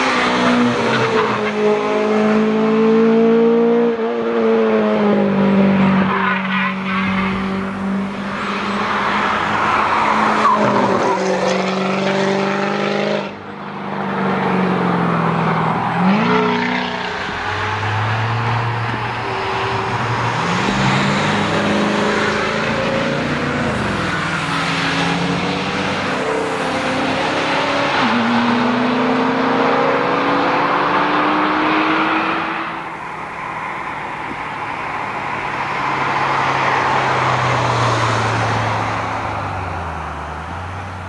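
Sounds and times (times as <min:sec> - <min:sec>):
car engine accelerating: 0:14.1 - 0:33.3.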